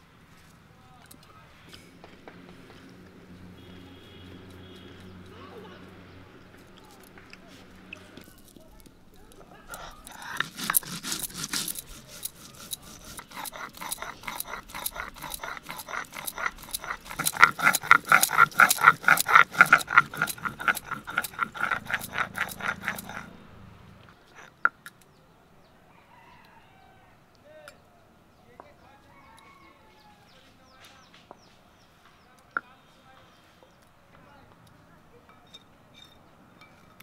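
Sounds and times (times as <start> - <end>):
grinding stone scraping on stone slab: 9.6 - 23.4.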